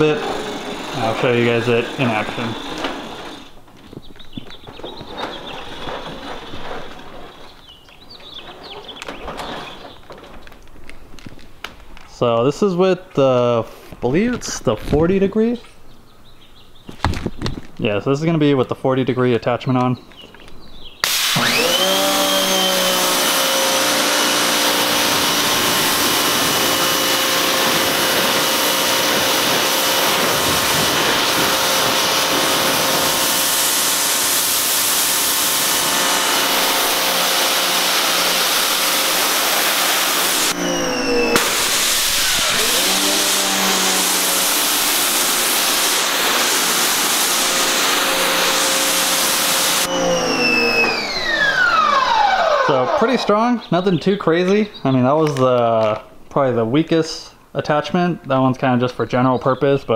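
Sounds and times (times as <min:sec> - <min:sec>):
pressure washer motor whine: 0:00.0 - 0:03.6, 0:21.0 - 0:53.5
water spray hissing: 0:21.0 - 0:21.8, 0:22.6 - 0:40.6, 0:41.2 - 0:49.9.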